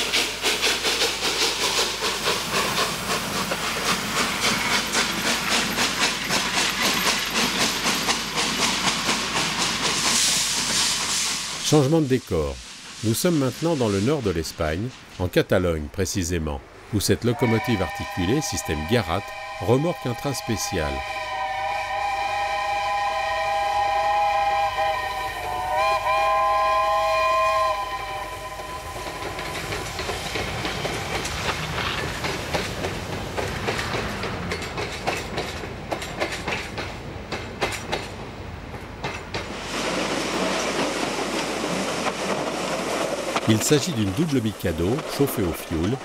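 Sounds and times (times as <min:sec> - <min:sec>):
train wheels clattering past: 0:00.0 - 0:11.6, 0:28.4 - 0:46.0
rushing noise: 0:00.0 - 0:17.3, 0:28.0 - 0:36.2, 0:39.3 - 0:46.0
steam locomotive whistle chord: 0:17.3 - 0:29.3.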